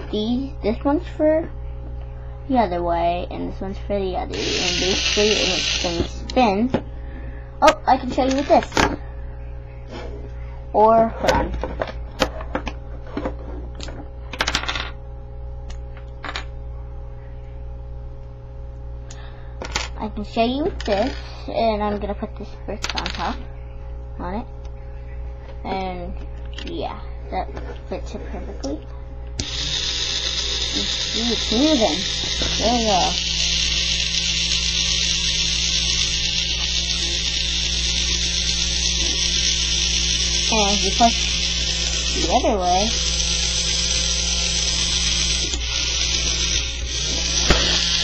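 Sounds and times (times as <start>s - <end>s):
steady low hum: 0.0s - 48.0s
toy motor whirring: 4.3s - 6.4s, 8.1s - 8.9s, 20.8s - 21.4s, 29.4s - 48.0s.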